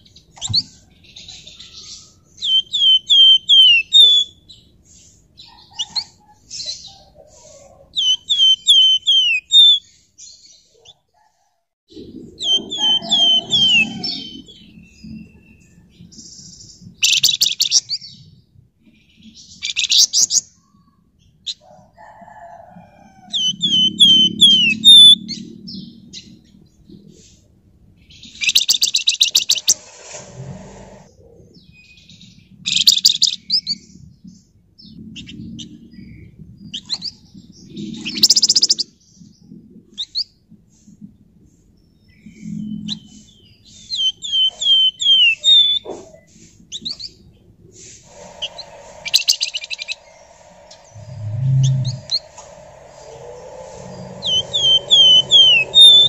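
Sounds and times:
bird downward-slurred whistles: 2.4 - 4.3, 8.0 - 9.8, 12.4 - 14.4, 23.4 - 25.2, 43.9 - 45.8, 51.0 - 52.2, 53.8 - 56.0
songbird rattling trills: 48.1 - 56.0.

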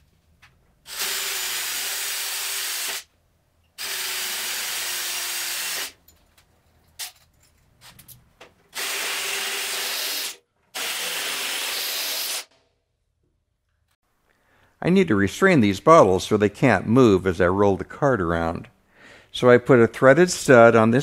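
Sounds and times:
drill drilling through sheet metal: 0.9 - 3.1, 3.8 - 6.0, 8.7 - 12.5.

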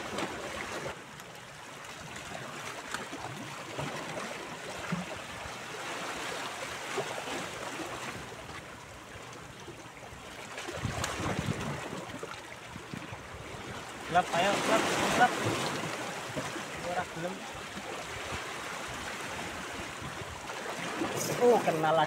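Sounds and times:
small waves lapping on rocks: 0.0 - 22.0
wind noise on microphone: 10.7 - 12.0.

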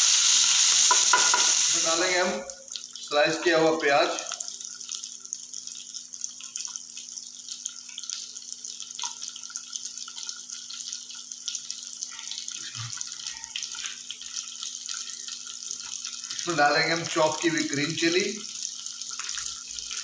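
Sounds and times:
onions sizzling in hot oil: 0.0 - 20.0.

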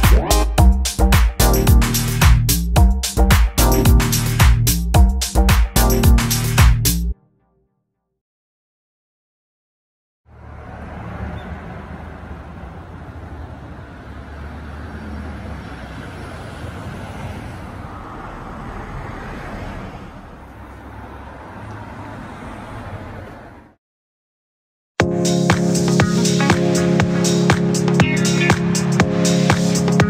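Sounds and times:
low traffic rumble: 10.3 - 23.8
passing vehicles: 10.3 - 23.8.

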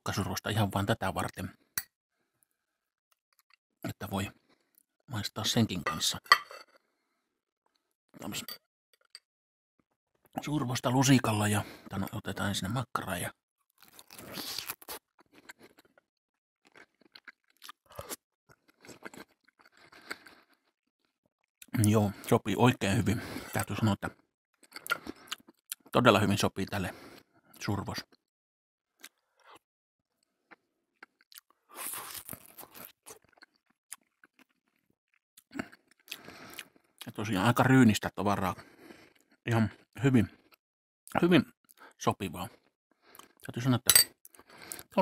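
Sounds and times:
person chewing: 13.8 - 16.0, 16.6 - 20.7, 24.6 - 25.9, 30.5 - 36.8.

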